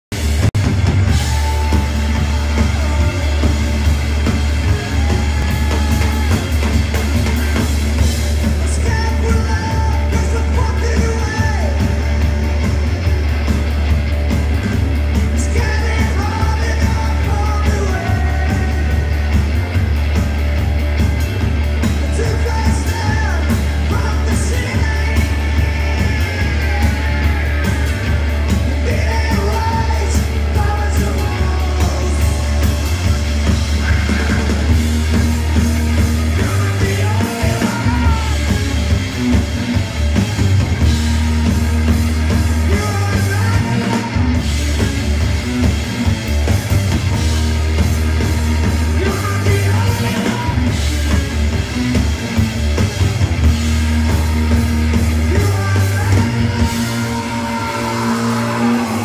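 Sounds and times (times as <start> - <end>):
rock band playing live: 0.0 - 59.0
person singing: 1.1 - 7.0, 22.0 - 34.9, 35.9 - 38.7, 41.0 - 44.4, 48.4 - 51.2, 53.8 - 59.0.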